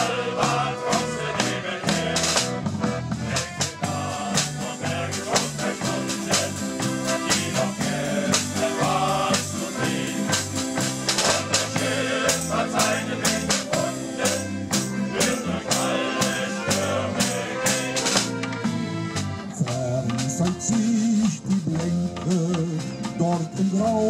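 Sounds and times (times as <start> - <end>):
choir singing: 0.0 - 18.5
instrumental accompaniment: 0.0 - 24.0
percussion beat: 0.0 - 24.0.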